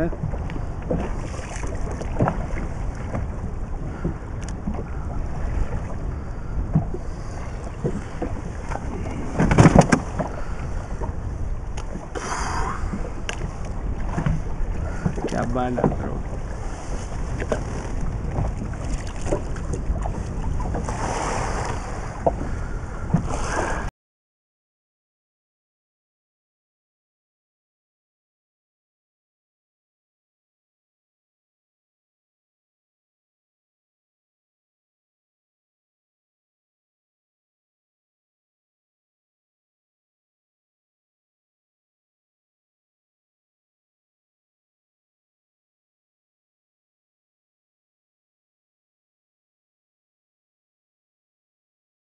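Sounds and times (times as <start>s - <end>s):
sea washing around boat: 0.0s - 23.9s
wind rumbling on microphone: 0.0s - 23.9s.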